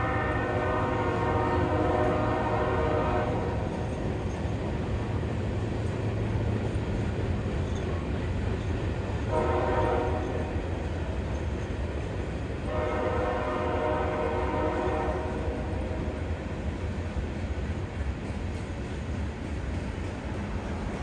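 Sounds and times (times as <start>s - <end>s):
train horn blasts: 0.0s - 3.8s, 9.2s - 10.7s, 12.6s - 16.2s
freight train rumbling past: 0.0s - 21.0s.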